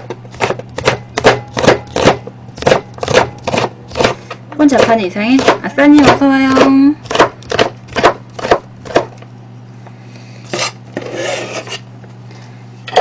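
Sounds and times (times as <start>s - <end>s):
knife chopping on plastic board: 0.2s - 9.2s
scraping rustle: 10.5s - 11.9s.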